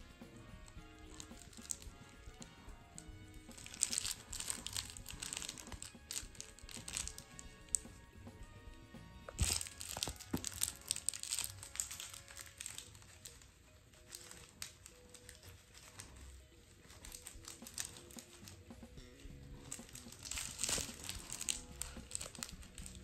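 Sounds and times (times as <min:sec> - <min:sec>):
faint background music: 0:00.0 - 0:23.0
cloth toy scuffing over tiled floor: 0:09.3 - 0:13.4, 0:19.6 - 0:23.0.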